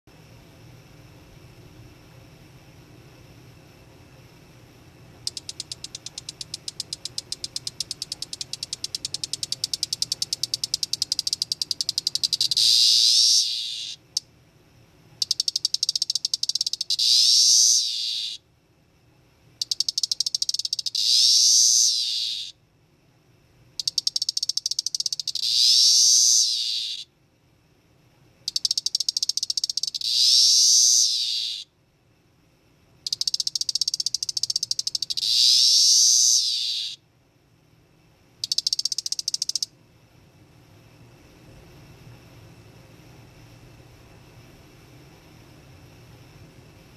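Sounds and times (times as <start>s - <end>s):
cicada ticking and buzzing: 5.2s - 14.3s, 15.2s - 18.4s, 19.6s - 22.6s, 23.8s - 27.1s, 28.4s - 31.7s, 33.0s - 37.0s, 38.4s - 39.8s.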